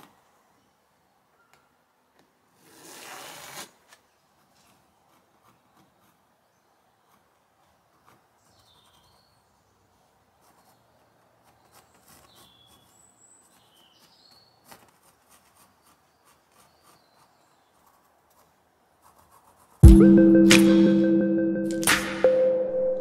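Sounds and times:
faint high bird chirps: 1.3 - 1.8
pencil scratching on canvas: 4.3 - 19.8.

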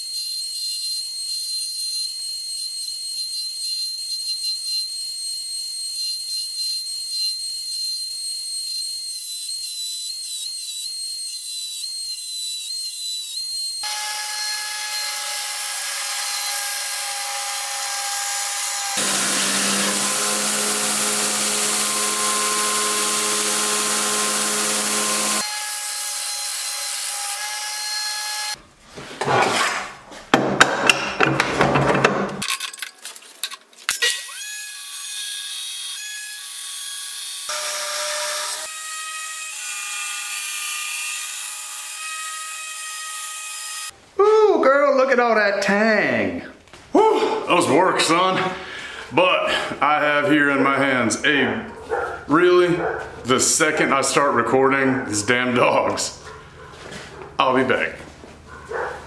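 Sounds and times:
belt grinder grinding steel: 0.0 - 28.6, 34.0 - 43.9.

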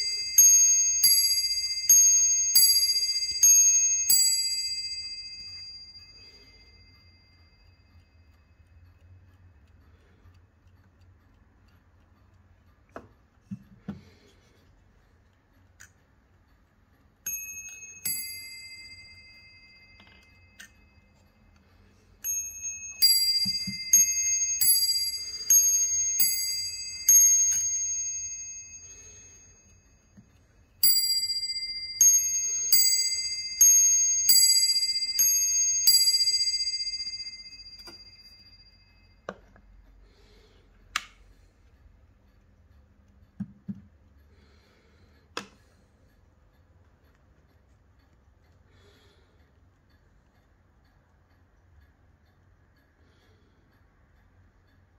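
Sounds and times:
clock bells ding-dong strike: 22.2 - 29.4, 30.8 - 39.4.

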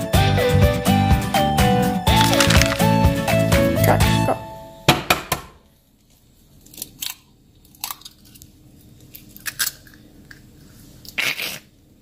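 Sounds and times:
eggshell cracking: 2.1 - 3.0.

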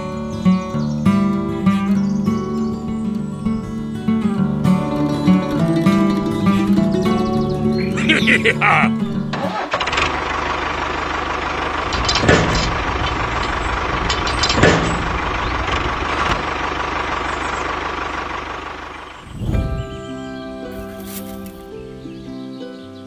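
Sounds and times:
tractor engine running: 0.0 - 21.9
loud knocks: 12.0 - 13.2, 13.8 - 16.5.

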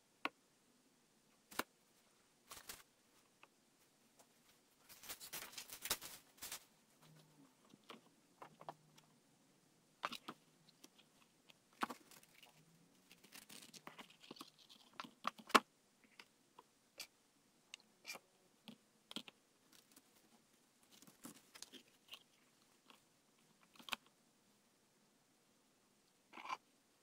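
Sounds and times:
paper rustling: 2.4 - 2.9, 4.3 - 6.7, 11.8 - 14.4.

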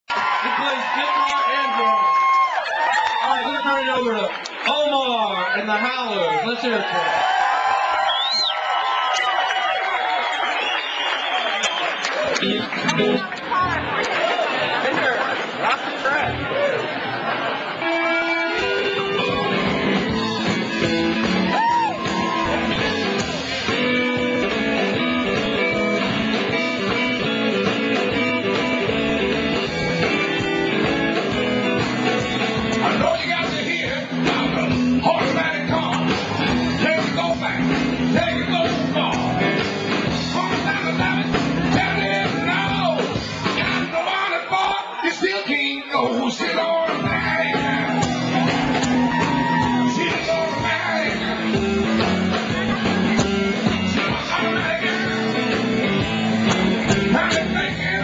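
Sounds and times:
electric guitars: 12.0 - 14.8, 16.2 - 44.0, 46.8 - 58.0
blues-rock band playing live: 12.2 - 14.8, 15.5 - 44.1, 46.0 - 58.0
drum kit: 17.9 - 44.0, 46.4 - 58.0
man singing: 32.8 - 36.1, 36.8 - 39.5, 40.3 - 48.0, 49.6 - 51.6, 53.6 - 55.6, 56.8 - 58.0.

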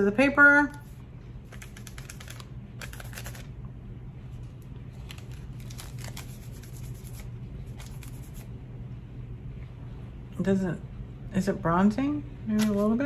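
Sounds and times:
low hum: 0.0 - 12.8
paper rustling: 0.8 - 3.5, 4.9 - 8.5, 12.6 - 13.0.

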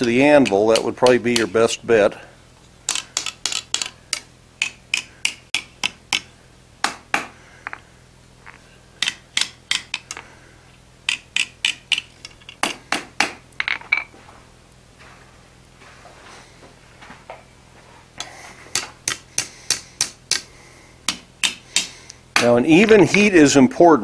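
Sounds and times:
hammer striking hot iron on anvil: 0.0 - 1.6, 2.9 - 7.8, 18.7 - 20.5, 21.1 - 23.3.

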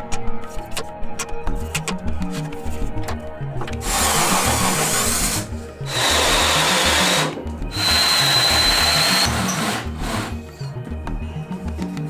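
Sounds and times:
background music: 0.0 - 12.0
drill hole saw cutting plywood: 3.8 - 10.4.

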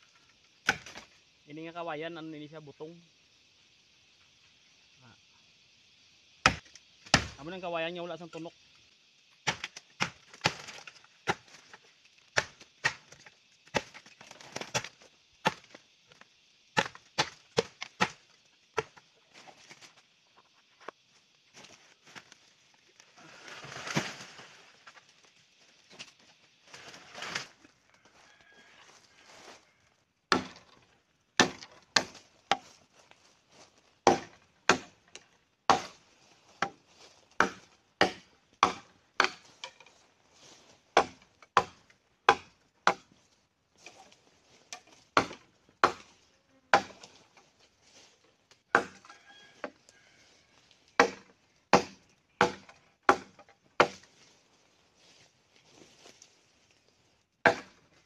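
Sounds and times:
machete chopping bamboo: 0.6 - 1.1, 6.4 - 7.5, 9.4 - 15.8, 16.8 - 18.2, 18.8 - 19.0, 30.3 - 30.8, 31.4 - 32.6, 34.0 - 36.0, 36.6 - 36.8, 37.4 - 39.9, 41.0 - 43.1, 44.7 - 46.1, 46.7 - 47.1, 48.7 - 49.1, 50.9 - 54.1, 57.4 - 57.8.

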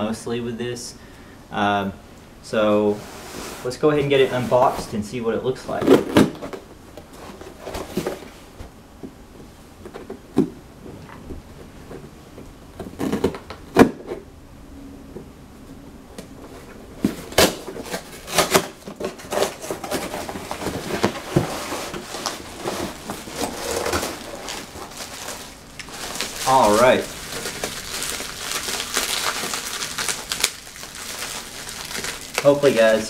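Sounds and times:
bubble wrap rustling: 16.5 - 33.0
cardboard knocks and scrapes: 17.0 - 24.9.

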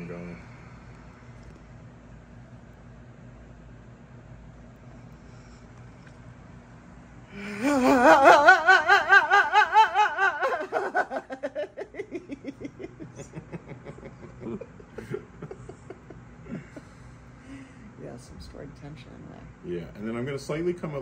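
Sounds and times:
woman's wavering vocal sound: 7.3 - 10.8
woman laughing: 7.4 - 16.8.

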